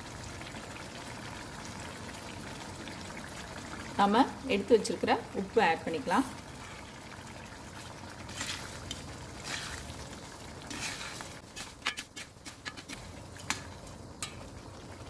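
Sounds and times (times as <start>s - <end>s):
oil sizzling: 0.0s - 15.0s
spatula stirring swishes: 8.2s - 13.6s
metal clicking on iron pan: 14.2s - 14.5s.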